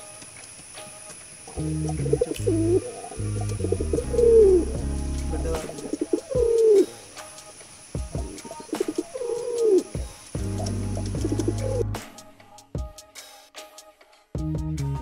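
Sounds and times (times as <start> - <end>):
background music: 0.0 - 15.0
pigeon cooing: 1.6 - 4.8, 5.4 - 7.1, 8.2 - 10.0, 11.0 - 11.9.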